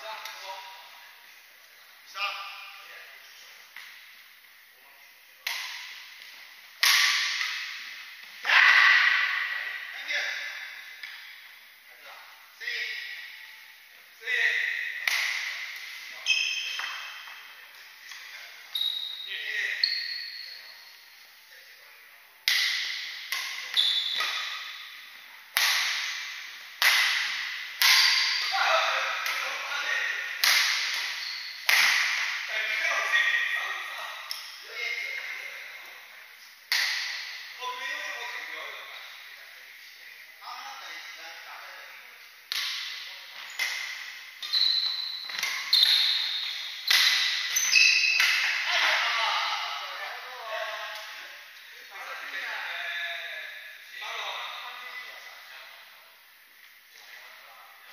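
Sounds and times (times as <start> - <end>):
badminton racket hitting shuttlecock: 6.8 - 7.9, 15.0 - 16.0, 22.4 - 24.8, 25.5 - 29.5, 30.2 - 32.5, 36.7 - 37.5, 45.3 - 48.6
shoes squeaking on wooden floor: 16.1 - 17.3, 18.7 - 20.5, 23.7 - 24.6, 31.0 - 31.6, 44.4 - 46.8, 47.4 - 48.2.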